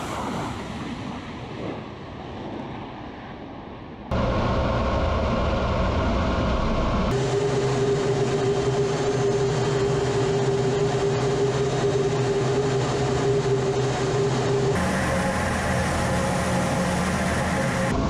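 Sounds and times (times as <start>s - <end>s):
jet engines and rushing air: 0.0s - 18.0s
steady hum tone: 4.1s - 18.0s.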